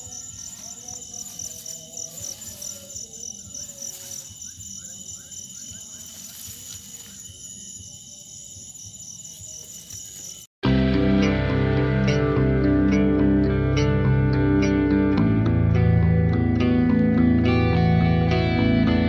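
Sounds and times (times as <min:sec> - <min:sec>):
crickets chirping: 0:00.0 - 0:10.6.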